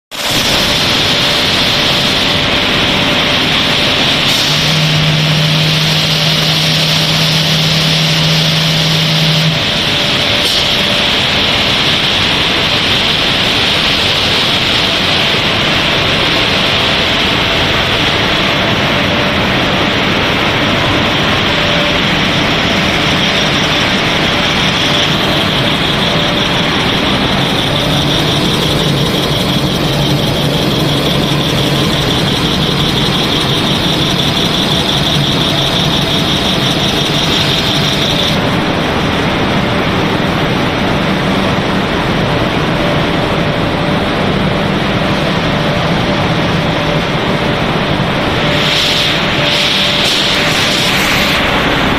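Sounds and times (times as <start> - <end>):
loud machinery noise: 0.1 - 51.9
low hum: 16.9 - 51.9.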